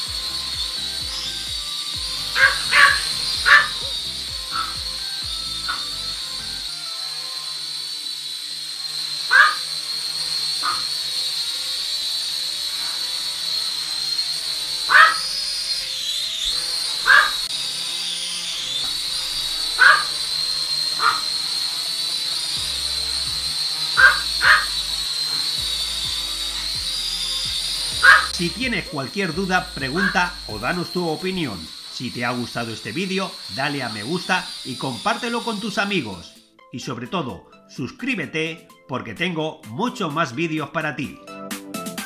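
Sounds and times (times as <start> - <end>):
toy drone motors whining: 0.0 - 36.6
quiet background music: 0.0 - 42.0
sharp animal-like calls: 2.4 - 4.8, 9.3 - 9.6, 14.9 - 15.2, 17.0 - 17.5, 19.8 - 20.1, 21.0 - 21.3, 24.0 - 24.7.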